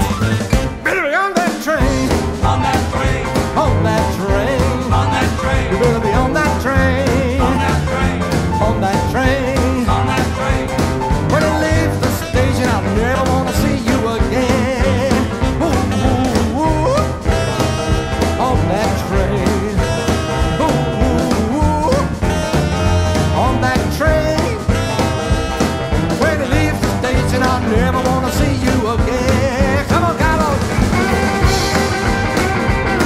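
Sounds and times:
rhythm and blues band playing: 0.0s - 33.0s.

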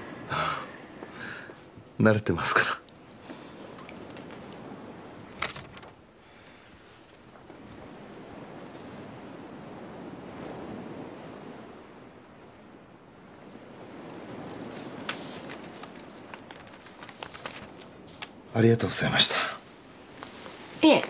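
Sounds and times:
short rustle: 5.2s - 7.5s, 14.4s - 18.6s.

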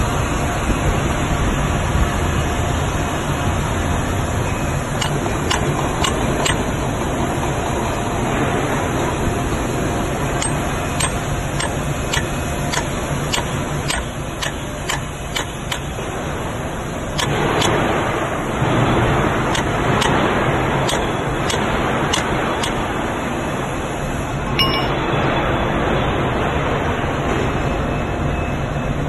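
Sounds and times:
workshop machinery noise: 0.0s - 29.0s
hammer tapping steel plate: 24.6s - 25.0s.

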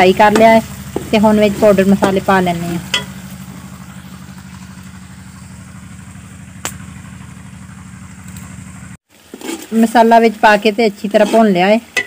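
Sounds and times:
engine idling hum: 0.0s - 9.0s.

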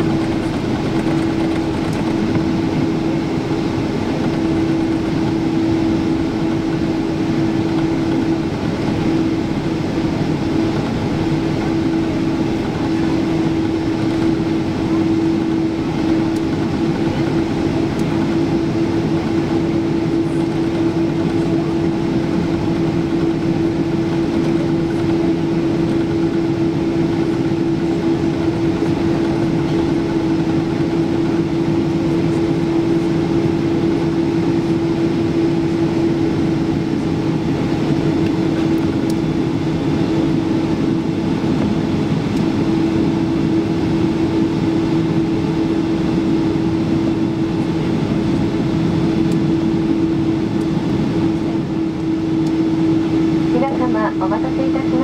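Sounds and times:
airliner engine drone: 0.0s - 55.0s
constant mid-pitched tone: 53.5s - 55.0s.

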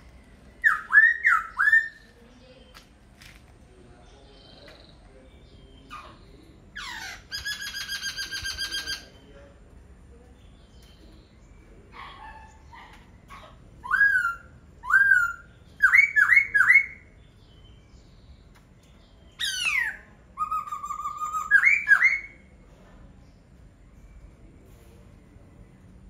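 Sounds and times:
bird singing whistled notes: 0.5s - 2.8s, 13.8s - 22.6s.

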